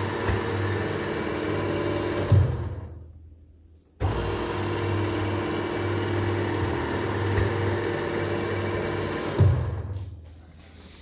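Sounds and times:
router motor humming and whining: 0:00.0 - 0:02.7, 0:04.0 - 0:09.8.

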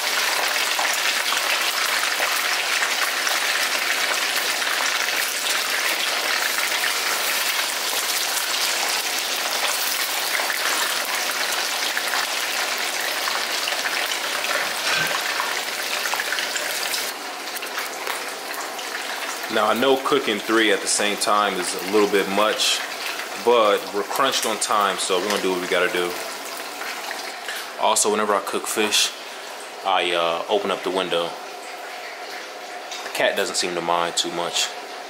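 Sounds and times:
fish sizzling in hot oil: 0:00.0 - 0:20.3, 0:21.6 - 0:27.5.

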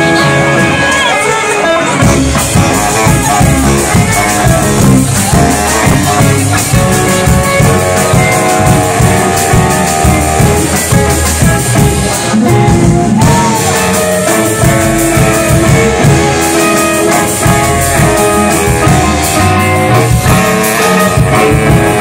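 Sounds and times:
live rock band playing: 0:00.0 - 0:22.0
upright double bass: 0:02.0 - 0:22.0.

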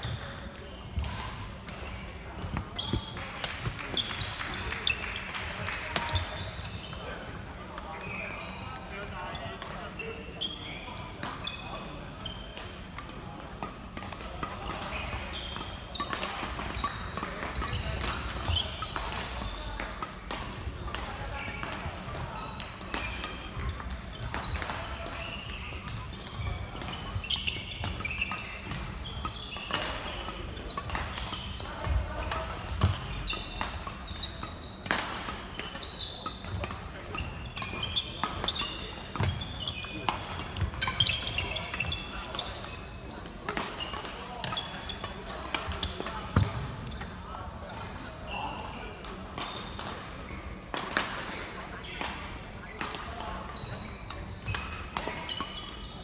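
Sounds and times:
sneakers squeaking on wooden floor: 0:00.0 - 0:05.2, 0:05.9 - 0:07.1, 0:10.0 - 0:11.6, 0:17.6 - 0:19.7, 0:21.4 - 0:22.5, 0:25.2 - 0:34.8, 0:35.5 - 0:42.5, 0:45.8 - 0:47.2, 0:50.3 - 0:50.5
rackets smacking shuttlecock: 0:12.5 - 0:42.8.

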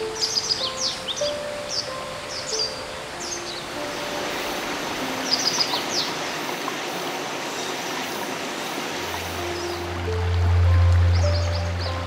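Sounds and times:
bird chirps: 0:00.0 - 0:03.7, 0:09.4 - 0:12.0
soft sustained music notes: 0:00.0 - 0:06.7, 0:08.6 - 0:12.0
stream running over rocks: 0:00.0 - 0:12.0
deep low music note: 0:09.2 - 0:12.0.

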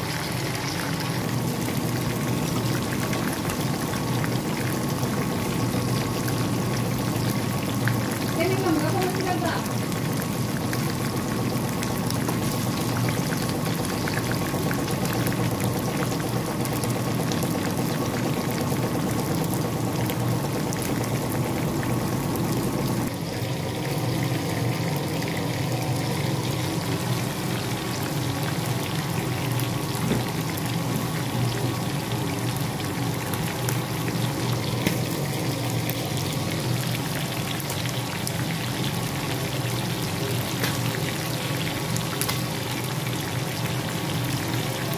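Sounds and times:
chicken deep-frying in hot oil: 0:00.0 - 0:44.9.

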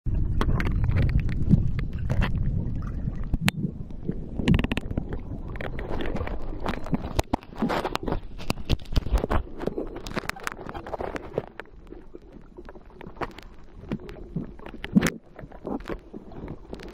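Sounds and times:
low rumble: 0:00.1 - 0:06.9.

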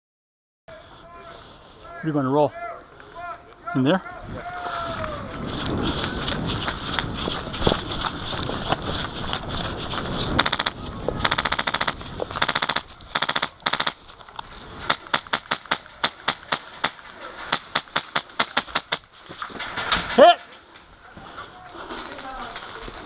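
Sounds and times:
rustling movement: 0:04.2 - 0:23.0
airsoft rifle shots: 0:10.4 - 0:14.0, 0:14.9 - 0:19.1.

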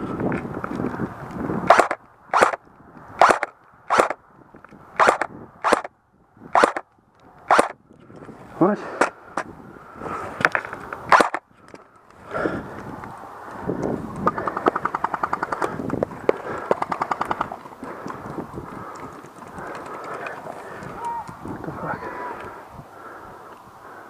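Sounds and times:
airsoft full-auto bursts: 0:01.7 - 0:02.6, 0:03.2 - 0:04.2, 0:05.0 - 0:05.9, 0:06.6 - 0:06.8, 0:07.5 - 0:07.8, 0:11.1 - 0:11.4
airsoft gun cracks: 0:01.7 - 0:02.6, 0:03.2 - 0:04.2, 0:05.0 - 0:05.9, 0:06.6 - 0:06.8, 0:07.5 - 0:07.8, 0:11.1 - 0:11.4.

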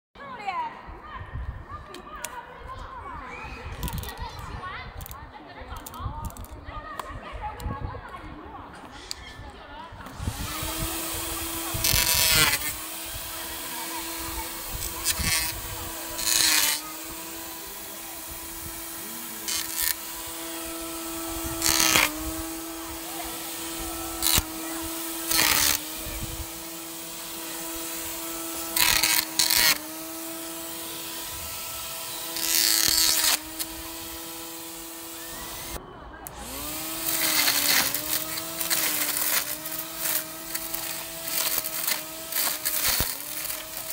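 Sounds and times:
string trimmer motor whining: 0:03.7 - 0:04.2, 0:10.0 - 0:43.9
grass cutting and thrashing: 0:10.0 - 0:43.9.

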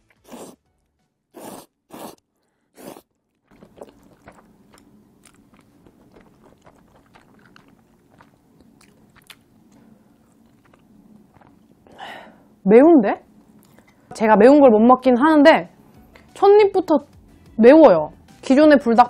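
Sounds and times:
person slurping noodles: 0:00.1 - 0:00.6, 0:01.4 - 0:05.0
wet chewing: 0:01.4 - 0:11.9.

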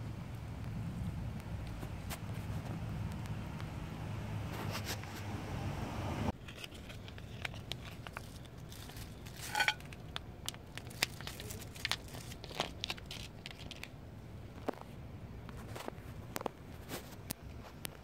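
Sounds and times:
steady low hum: 0:00.0 - 0:06.4
faint clicks and crinkles: 0:06.4 - 0:18.0.

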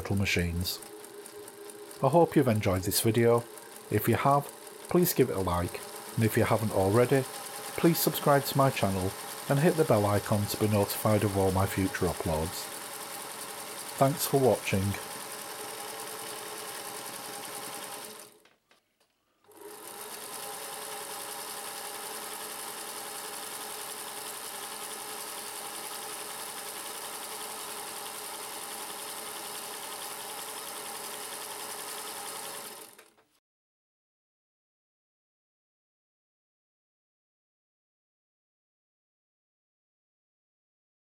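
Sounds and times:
sewing machine stitching: 0:00.0 - 0:18.5, 0:19.5 - 0:33.2.

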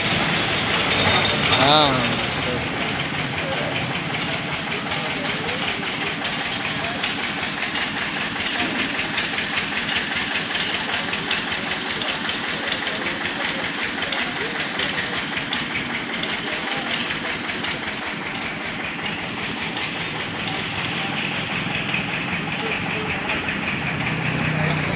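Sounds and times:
engine idling: 0:00.0 - 0:24.9.

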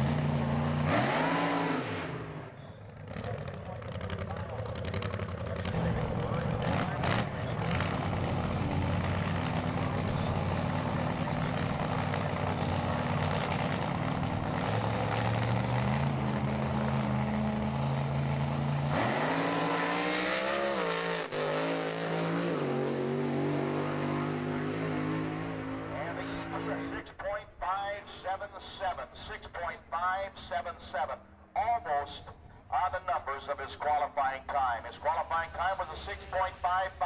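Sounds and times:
race car engine revving: 0:00.0 - 0:27.1.

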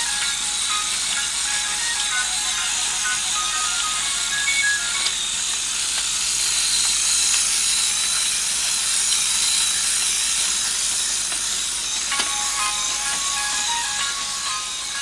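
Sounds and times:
electric motor and gears whirring: 0:00.0 - 0:15.0
short melody: 0:12.1 - 0:15.0.

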